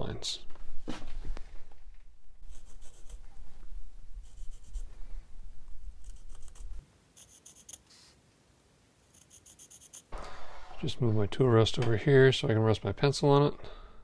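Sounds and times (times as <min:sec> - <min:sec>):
pencil scratching on wood: 0:02.4 - 0:03.2, 0:04.2 - 0:04.9, 0:06.0 - 0:08.1, 0:09.1 - 0:10.1
low rumble: 0:10.1 - 0:12.6.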